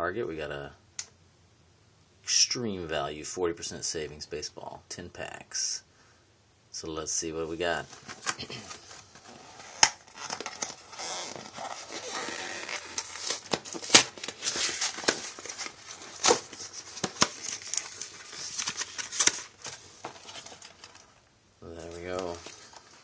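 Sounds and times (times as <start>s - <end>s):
cardboard box tearing: 9.2s - 19.5s.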